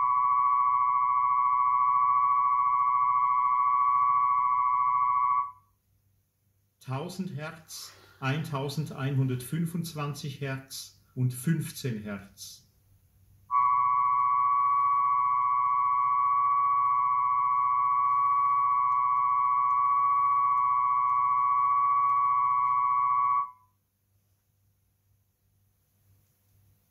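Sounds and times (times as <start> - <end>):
steady test tone: 0.0 - 5.6, 13.5 - 23.6.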